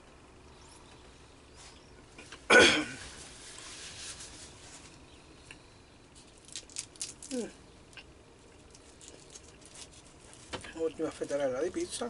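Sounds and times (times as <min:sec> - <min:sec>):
man coughing: 0:02.5 - 0:03.0.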